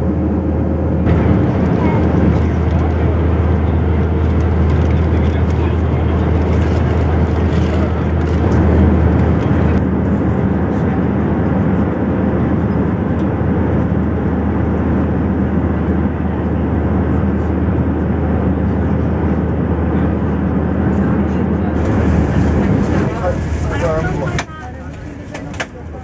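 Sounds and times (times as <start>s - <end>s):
jet engines droning: 0.0s - 26.0s
air rushing over fuselage: 21.8s - 24.2s.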